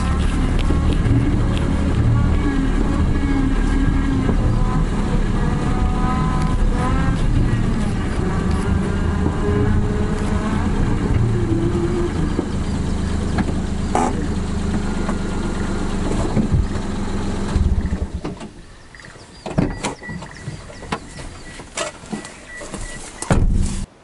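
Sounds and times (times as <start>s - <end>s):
tractor diesel engine running: 0.0s - 24.0s
faint broken beep: 18.9s - 23.3s.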